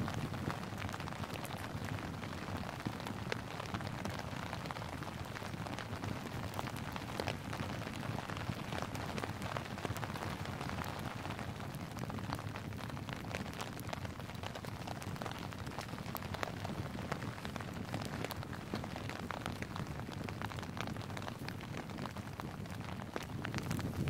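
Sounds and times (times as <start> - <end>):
steady rain hiss: 0.0 - 24.0
raindrop ticks: 0.1 - 24.0.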